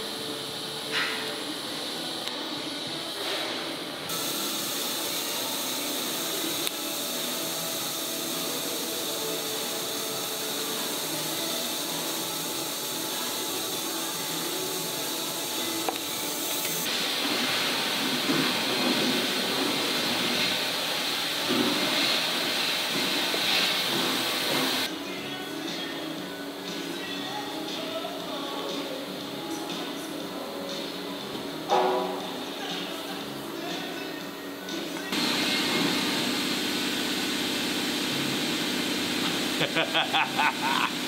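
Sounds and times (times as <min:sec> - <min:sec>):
welding arc hissing: 0:00.0 - 0:24.9, 0:35.1 - 0:41.0.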